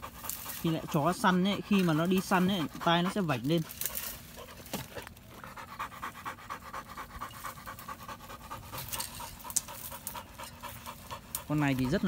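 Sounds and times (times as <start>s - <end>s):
dog panting rapidly: 0.0s - 12.0s.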